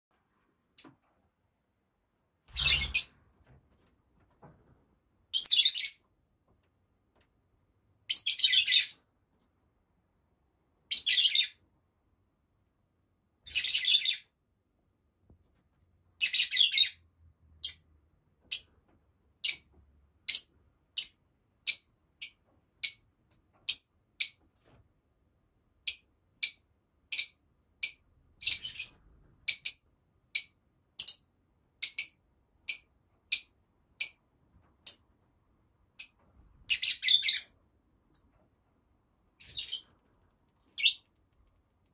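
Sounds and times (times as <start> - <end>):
lovebirds chirping sharply: 2.5 - 3.2, 39.4 - 39.9, 40.8 - 41.0
lovebirds chattering: 39.4 - 40.0.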